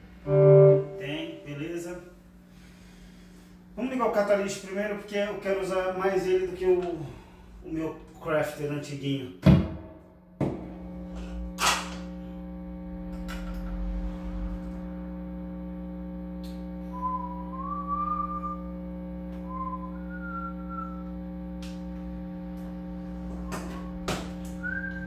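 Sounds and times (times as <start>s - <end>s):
amplifier electrical hum and buzz: 0.0s - 25.0s
person whistling sliding notes: 16.9s - 18.7s, 19.4s - 21.1s, 23.4s - 25.0s.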